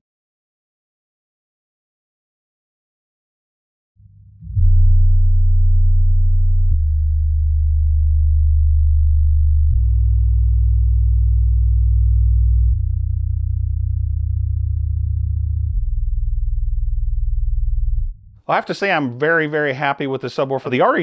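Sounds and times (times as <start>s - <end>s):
deep bass tones from subwoofer: 4.0s - 18.4s.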